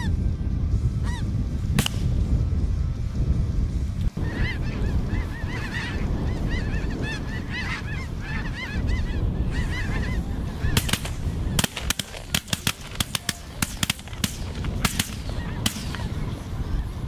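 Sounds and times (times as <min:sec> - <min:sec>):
steady low rumble: 0:00.0 - 0:17.0
geese honking: 0:04.2 - 0:17.0.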